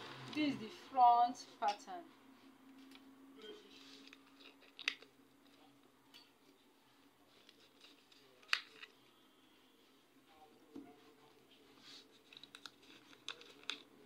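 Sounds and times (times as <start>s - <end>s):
paper rustling: 2.7s - 5.6s, 7.3s - 9.0s, 11.2s - 14.0s.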